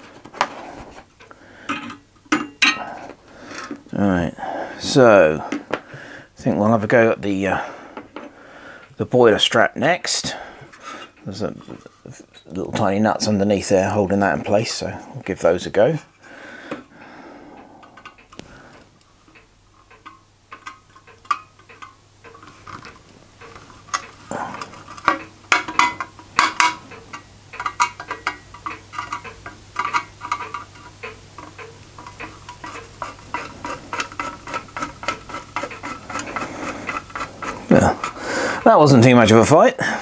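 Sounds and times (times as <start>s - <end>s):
hand tool clicking on metal parts: 0.0s - 3.8s, 19.3s - 38.7s.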